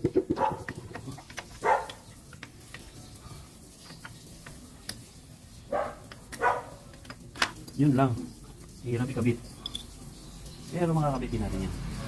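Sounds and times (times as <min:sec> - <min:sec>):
dog barking: 0:00.3 - 0:00.7, 0:01.6 - 0:02.0, 0:05.7 - 0:06.8.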